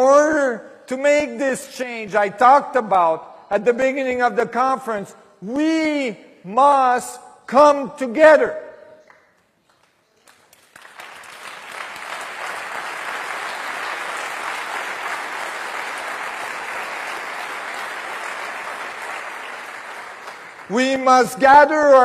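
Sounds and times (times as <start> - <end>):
audience applauding: 10.2 - 21.3.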